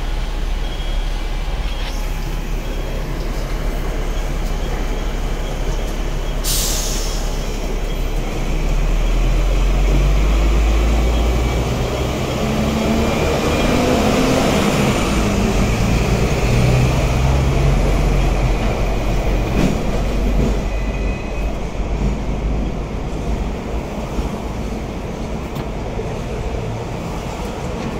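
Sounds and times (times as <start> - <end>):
tram wheels rumbling on rails: 0.0 - 27.9.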